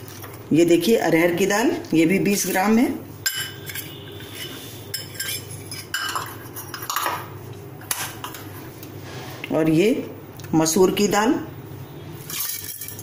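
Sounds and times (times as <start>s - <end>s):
metal bowls clinking and scraping: 2.3s - 7.3s, 12.2s - 13.0s.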